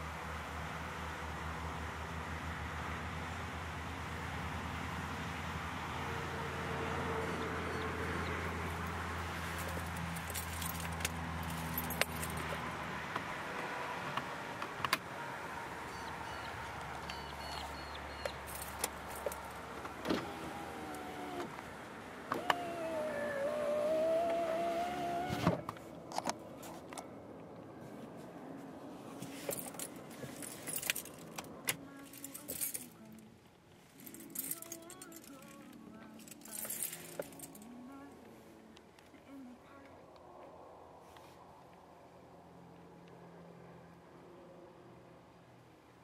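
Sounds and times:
car engine hum: 0.0 - 46.0
power window motor whine: 20.0 - 21.6, 22.2 - 25.6.

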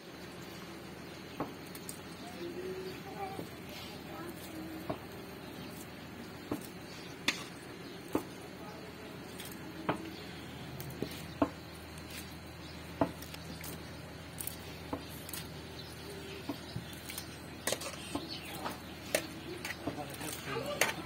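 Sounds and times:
hands working meat in metal bowl: 1.4 - 21.0.

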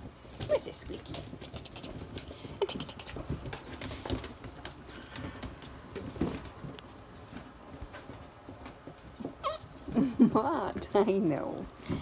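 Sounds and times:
rustling and scuffling: 0.0 - 12.0
squeaky chirps: 9.4 - 9.8.

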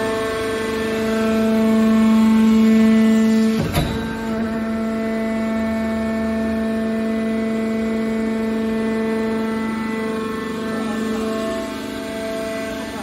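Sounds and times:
hydraulic pump motor humming: 0.0 - 13.0.

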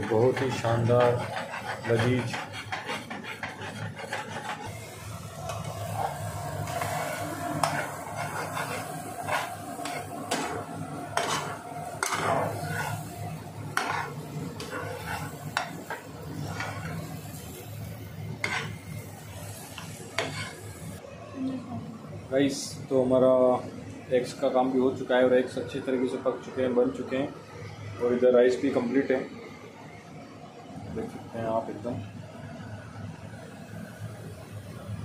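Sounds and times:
utensil scraping and clinking pan: 0.0 - 4.7, 5.6 - 17.0, 18.4 - 18.8, 20.2 - 20.6
light sizzle of frying: 0.0 - 21.0.

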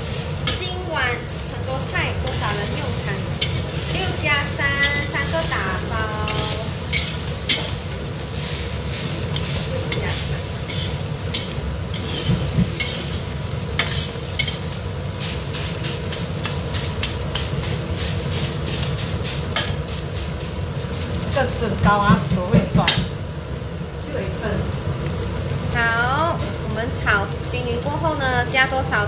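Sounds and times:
food sizzling: 0.0 - 29.0
metal spatula scraping a wok: 2.2 - 20.3.

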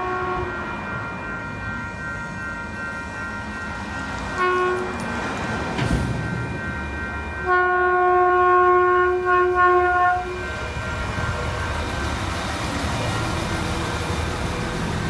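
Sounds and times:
train horn chord: 0.0 - 0.7, 4.4 - 5.0, 7.4 - 11.2
train rumbling past: 0.0 - 15.0.

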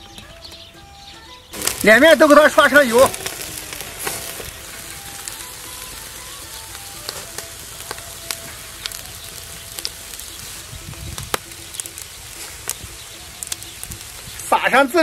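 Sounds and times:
food sizzling on a grill: 1.5 - 15.0
sharp crackles and pops: 1.5 - 15.0.

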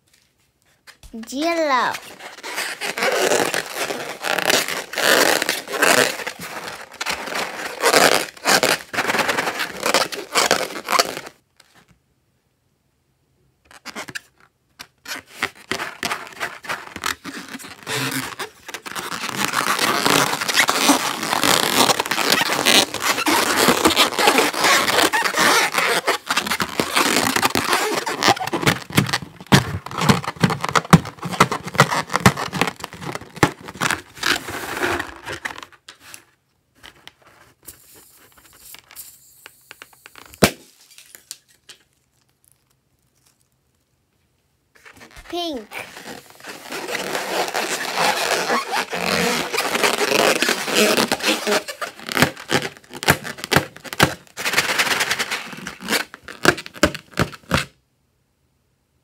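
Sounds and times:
rustling: 0.0 - 11.9, 15.1 - 57.6
balloon rubbed and squeezed: 1.2 - 11.3, 15.0 - 35.7, 37.5 - 40.8, 44.8 - 57.6.

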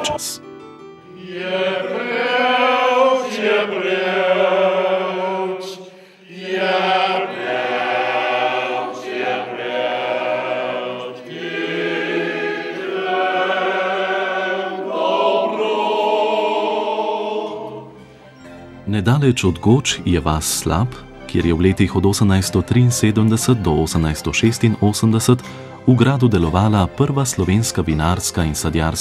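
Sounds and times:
men singing together: 1.1 - 17.9.

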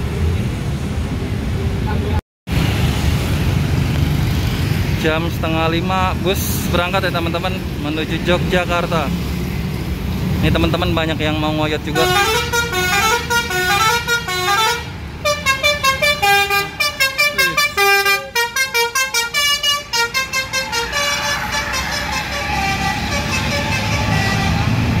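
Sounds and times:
bus engine running: 0.0 - 25.0
road traffic: 0.0 - 25.0
bus horn playing melody: 12.0 - 25.0.

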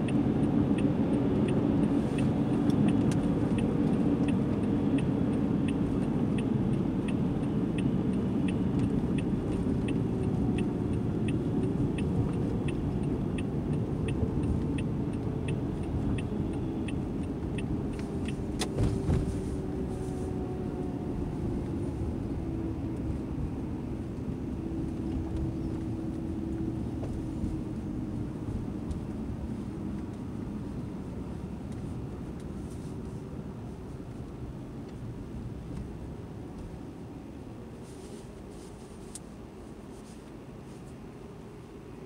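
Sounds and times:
light regular ticking: 0.0 - 18.7
car cabin road and engine noise: 0.0 - 42.0.

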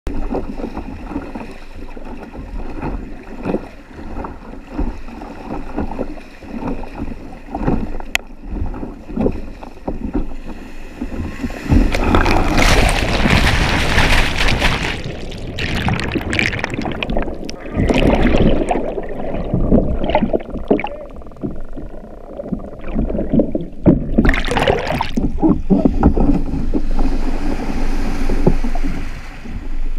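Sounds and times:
muffled underwater churning: 0.1 - 29.9
paddle strokes splashing: 0.1 - 29.9
surf washing in shallows: 0.1 - 29.9
breaking wave crashing: 11.9 - 19.2.

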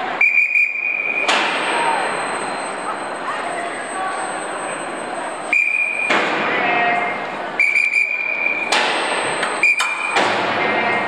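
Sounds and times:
workshop noise: 0.0 - 11.0
signal whistle blasts: 0.2 - 6.2, 7.6 - 8.7, 9.4 - 10.2.

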